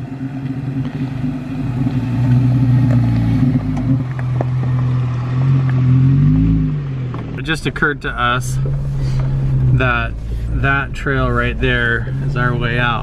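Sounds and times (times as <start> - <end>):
car engine running: 0.0 - 13.0
loose rock clicking under tyres: 0.3 - 5.8.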